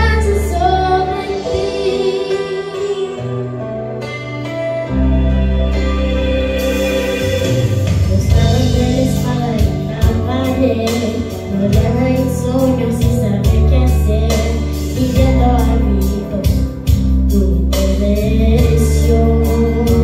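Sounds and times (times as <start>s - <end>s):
girl singing into microphone: 0.0s - 3.7s, 8.0s - 20.0s
instrumental accompaniment: 0.0s - 20.0s.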